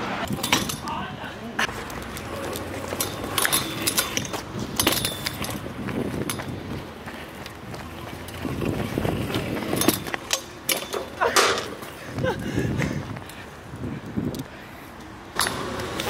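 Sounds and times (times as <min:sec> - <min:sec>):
scooter wheels rolling on pavement: 0:00.0 - 0:16.0
scooter clicks and knocks: 0:00.2 - 0:13.4, 0:14.3 - 0:16.0.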